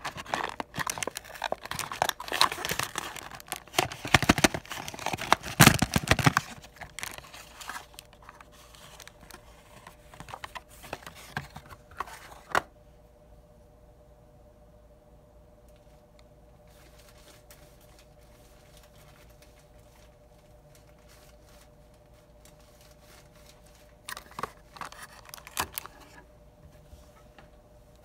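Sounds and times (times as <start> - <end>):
plastic packaging crinkling: 0.0 - 12.6, 16.7 - 26.2
faint steady hum: 0.0 - 28.0.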